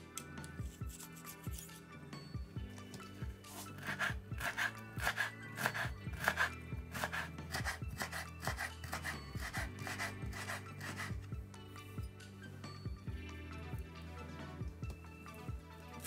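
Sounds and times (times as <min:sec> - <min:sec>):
knife chopping on wooden board: 0:03.8 - 0:10.0.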